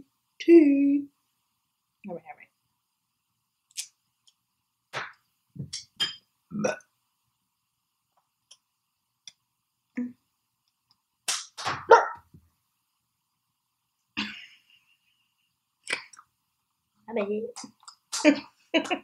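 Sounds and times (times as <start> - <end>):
dog barking: 11.9 - 12.3.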